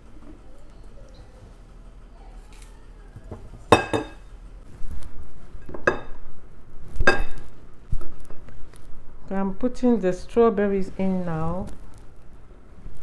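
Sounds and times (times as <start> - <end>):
knife and tableware clinking: 3.7 - 4.2, 5.6 - 6.2, 7.1 - 7.4.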